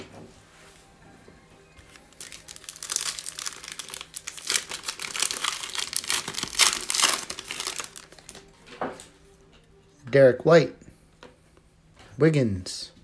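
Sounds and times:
foil wrapper crinkling and tearing: 2.0s - 8.4s.

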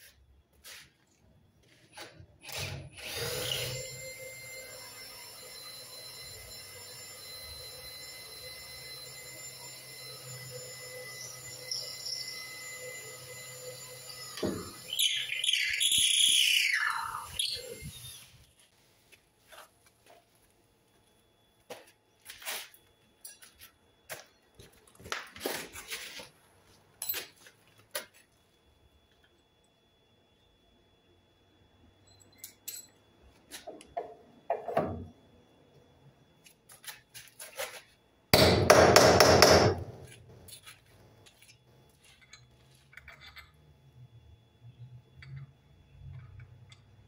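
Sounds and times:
power drill whining: 2.4s - 18.4s.

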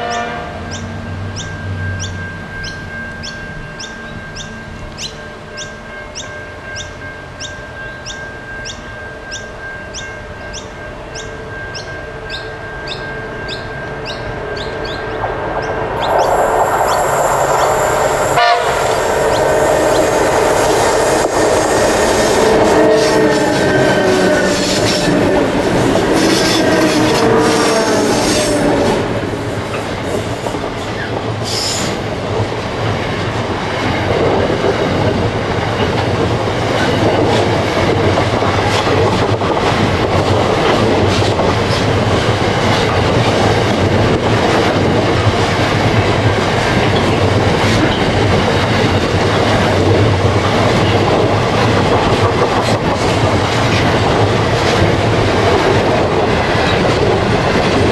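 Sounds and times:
diesel locomotives passing: 0.0s - 57.9s
high wheel squeal: 16.0s - 30.3s.

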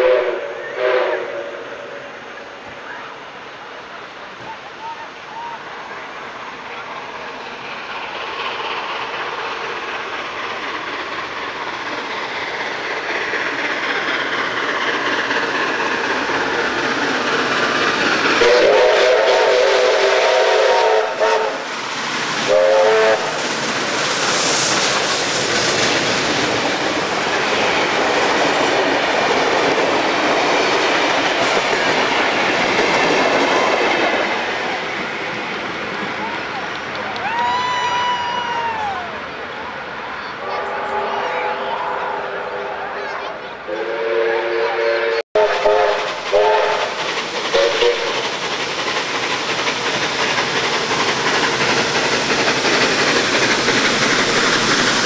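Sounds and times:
steam whistle blasts: 0.0s - 2.3s, 18.3s - 21.7s, 22.5s - 23.4s, 40.4s - 42.8s, 43.7s - 48.2s
steam train passing: 0.0s - 55.0s
rail clatter: 5.7s - 41.0s, 45.6s - 55.0s.

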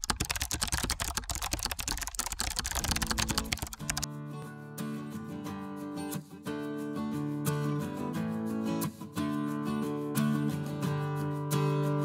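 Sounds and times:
rapid keyboard clicking: 0.0s - 4.1s
background guitar music: 4.1s - 12.0s.

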